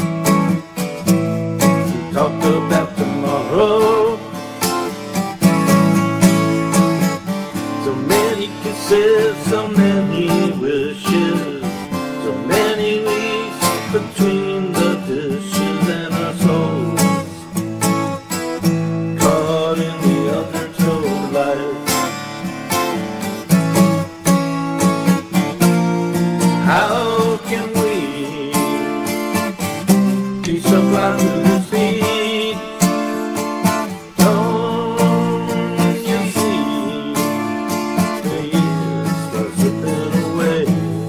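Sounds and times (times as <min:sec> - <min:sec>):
acoustic guitar strumming: 0:00.0 - 0:41.0
man singing: 0:01.6 - 0:04.5, 0:07.6 - 0:17.6, 0:19.0 - 0:22.5, 0:26.4 - 0:41.0.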